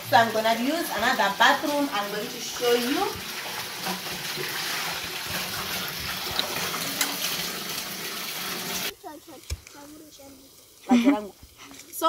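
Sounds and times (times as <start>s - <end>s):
tap water running into sink: 0.0s - 8.9s
water splashing and dripping: 0.0s - 10.8s.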